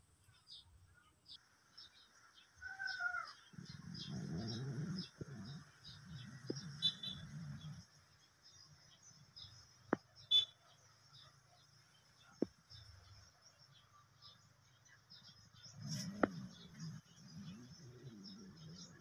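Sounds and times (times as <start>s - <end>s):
birds chirping: 0.2s - 19.0s
low rough animal sounds: 2.6s - 8.6s, 15.6s - 19.0s.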